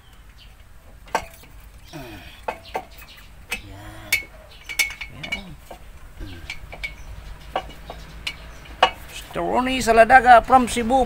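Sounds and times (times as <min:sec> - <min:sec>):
faint voices: 0:01.9 - 0:02.5, 0:03.5 - 0:04.4, 0:05.1 - 0:06.8
metallic clinks of tools: 0:03.5 - 0:07.0.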